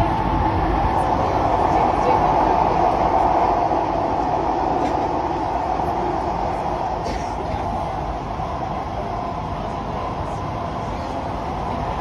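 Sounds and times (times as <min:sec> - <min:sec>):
metro train wheels rumbling: 0:00.0 - 0:12.0.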